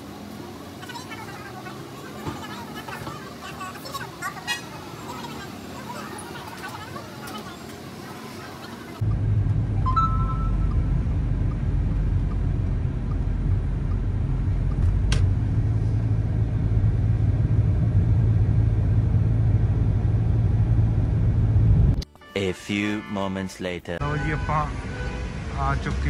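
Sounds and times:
car engine and tyres rumbling: 0.0 - 22.0, 24.0 - 26.0
faint beep: 9.8 - 10.9.

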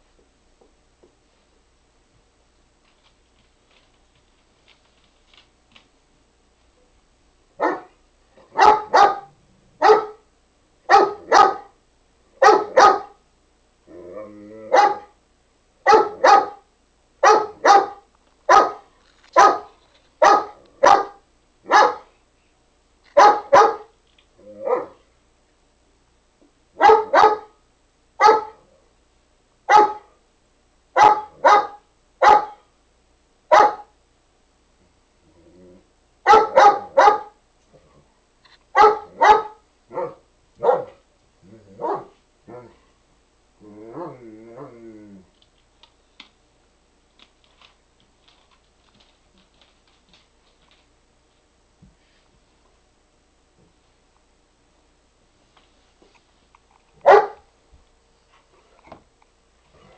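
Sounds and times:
dog barking: 7.6 - 10.3, 10.9 - 11.8, 12.4 - 13.2, 14.7 - 15.2, 15.8 - 22.2, 23.2 - 23.9, 24.6 - 25.0, 26.8 - 27.6, 28.2 - 28.7, 29.7 - 30.2, 31.0 - 32.7, 33.5 - 34.0, 36.2 - 37.4, 38.7 - 41.0, 41.7 - 42.8, 57.0 - 57.5
dog growling: 13.9 - 14.8, 24.4 - 25.0, 35.2 - 35.9, 41.4 - 42.9, 43.6 - 45.4, 59.7 - 59.9.

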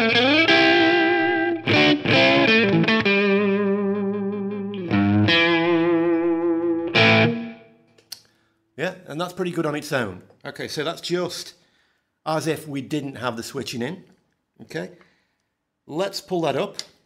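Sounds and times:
overdriven electric guitar blues: 0.0 - 7.8.

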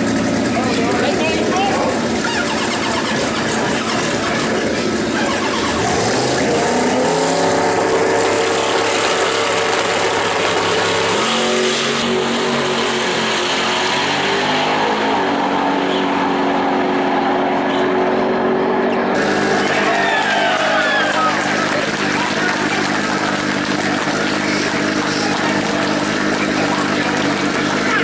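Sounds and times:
drag car engine revving: 0.0 - 28.0.

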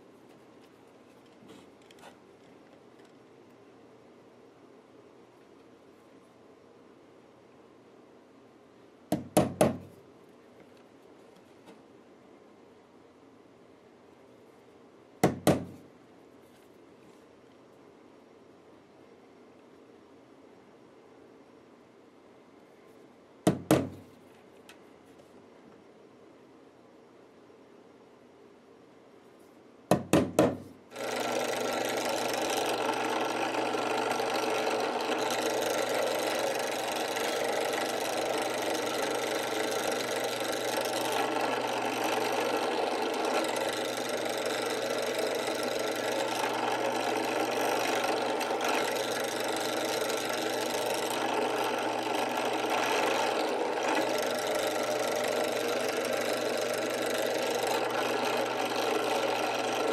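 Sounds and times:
drill press running: 30.9 - 59.9.

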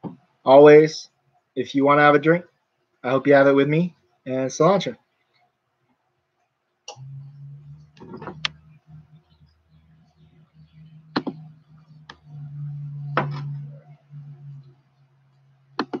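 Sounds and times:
steady low hum: 6.9 - 16.0.

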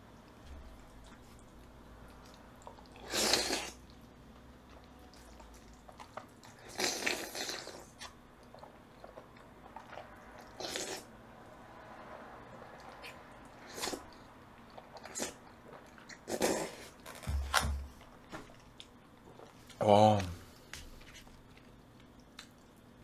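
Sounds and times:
soft chewing and mouth clicks: 0.1 - 11.0, 18.0 - 23.0
person slurping noodles: 3.0 - 3.8, 6.5 - 8.0, 10.6 - 11.1, 13.6 - 14.2, 16.2 - 17.0.

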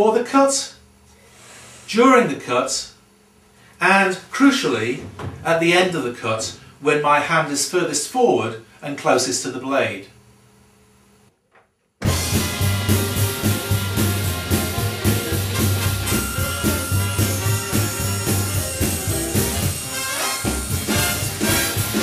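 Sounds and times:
swing jazz with brass and drums: 12.0 - 22.0.

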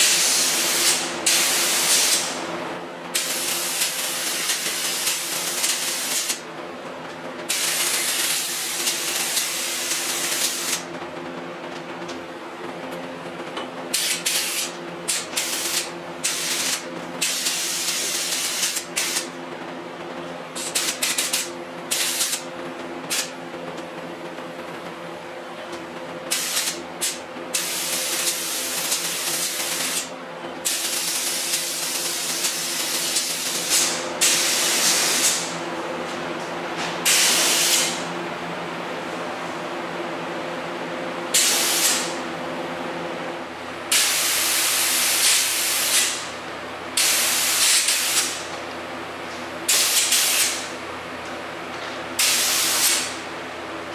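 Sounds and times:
spray gun hissing: 41.4 - 42.1.

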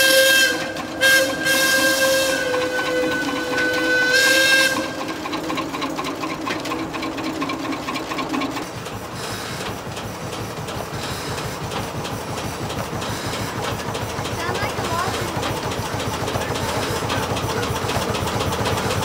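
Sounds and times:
steam whistle chord: 0.0 - 5.0
steam engine rhythmic beat: 0.0 - 19.0.

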